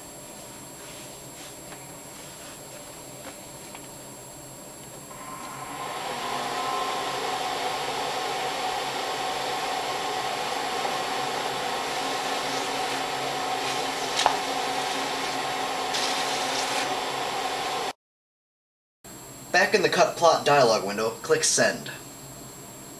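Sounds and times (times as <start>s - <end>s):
vinyl cutter motors whining: 4.8s - 17.9s.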